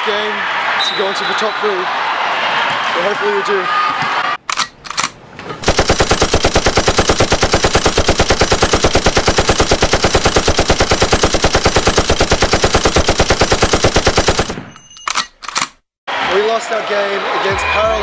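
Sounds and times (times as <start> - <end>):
rapid sharp pulses: 5.6 - 14.7.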